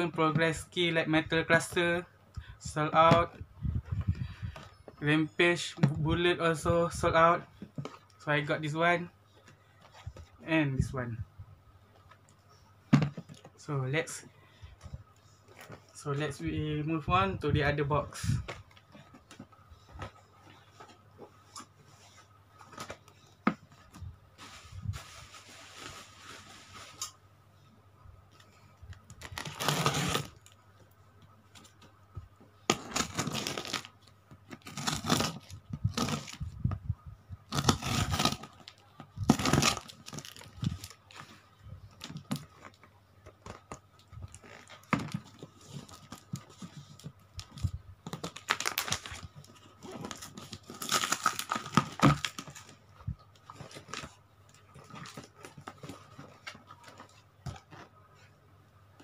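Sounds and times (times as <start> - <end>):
tape tearing: 29.2 - 30.6, 32.7 - 33.9, 34.5 - 36.4, 37.5 - 40.9, 48.1 - 49.2, 49.8 - 52.7.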